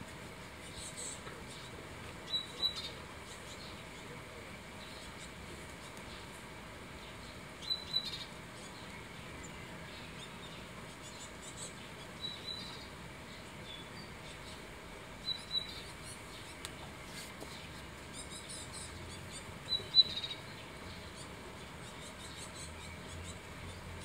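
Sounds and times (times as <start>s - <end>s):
birds chirping high: 0.0s - 24.0s
faint clicks: 16.5s - 16.9s.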